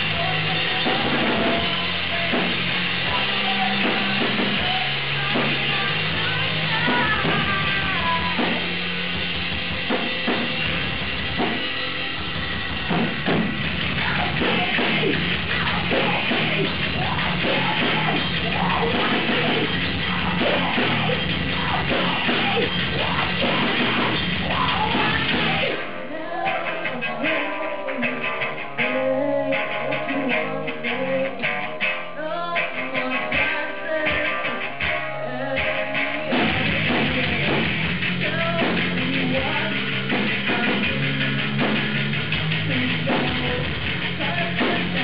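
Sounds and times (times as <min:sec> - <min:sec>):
drum kit and cymbals: 0:00.0 - 0:45.0
electric guitar: 0:00.0 - 0:45.0
heavy metal band playing: 0:00.0 - 0:45.0
woman singing and yelling: 0:03.1 - 0:08.6, 0:14.0 - 0:28.2, 0:32.1 - 0:37.5.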